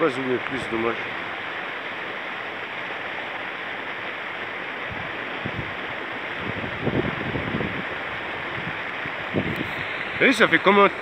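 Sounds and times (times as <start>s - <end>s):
water rushing from cascade: 0.0s - 11.0s.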